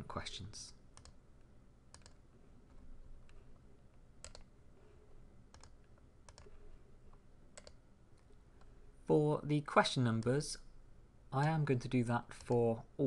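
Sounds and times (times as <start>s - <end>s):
faint room hum: 0.0s - 13.0s
computer mouse clicking: 1.0s - 1.2s, 1.9s - 3.6s, 4.2s - 4.5s, 5.5s - 8.8s.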